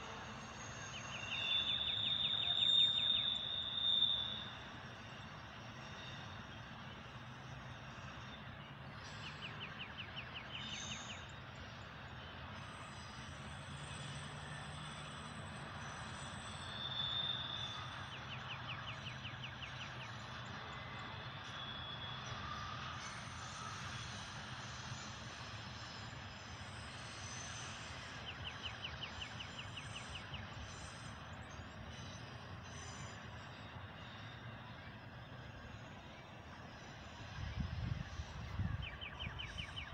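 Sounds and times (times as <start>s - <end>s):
freight train wheels on rail: 11.6s - 39.9s.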